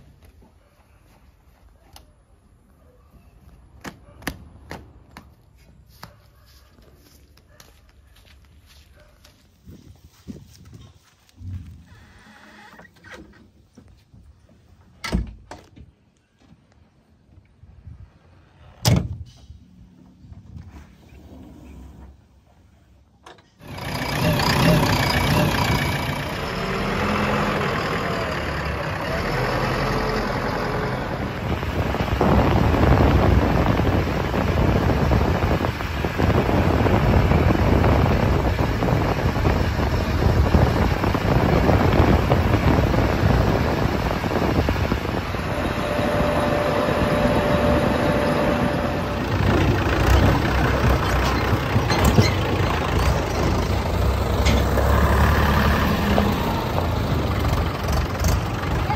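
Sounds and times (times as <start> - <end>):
diesel engine running: 23.6 - 58.9.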